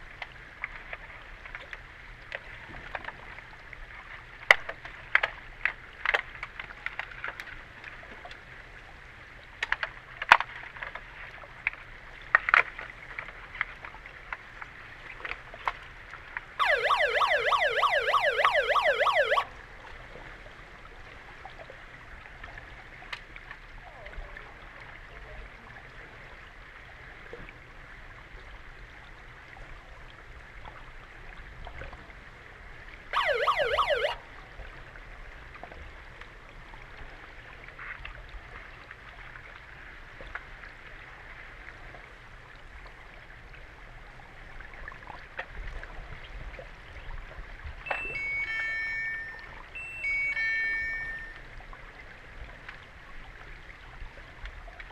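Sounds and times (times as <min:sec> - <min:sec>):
hockey sticks and puck clicking underwater: 0:09.6 - 0:14.4
electronic underwater siren warbling: 0:16.6 - 0:19.5, 0:33.1 - 0:34.2, 0:47.9 - 0:51.5.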